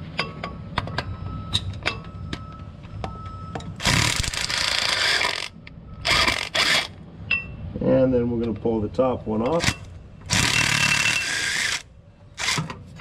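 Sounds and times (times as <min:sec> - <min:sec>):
small power tool running: 0:10.3 - 0:11.8.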